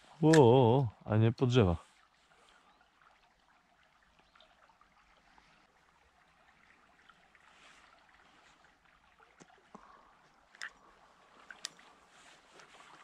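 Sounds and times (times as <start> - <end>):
faint flowing river water: 0.0 - 13.0
light clicks: 11.4 - 11.8.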